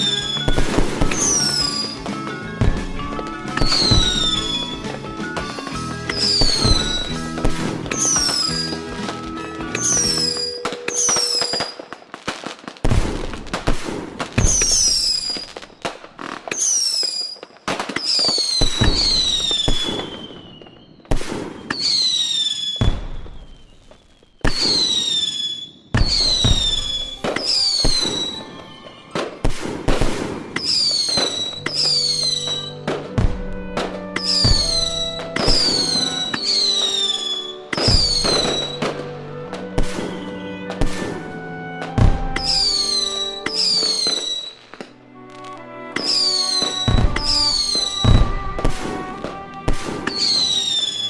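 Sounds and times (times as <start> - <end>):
steady music notes: 0.0 - 11.2, 26.1 - 51.0
firework bangs and crackling: 0.0 - 51.0
firework whistles: 0.0 - 51.0.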